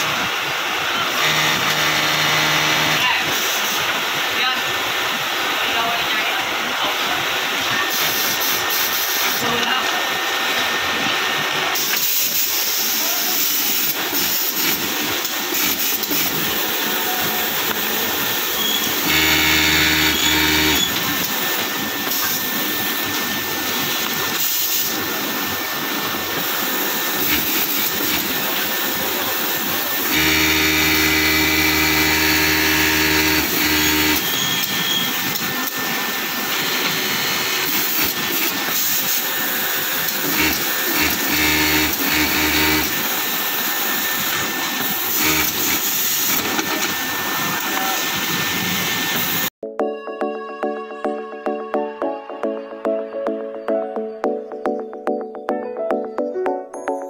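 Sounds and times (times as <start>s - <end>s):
sewing machine stitching: 30.0s - 35.8s, 40.0s - 43.2s, 44.3s - 47.0s.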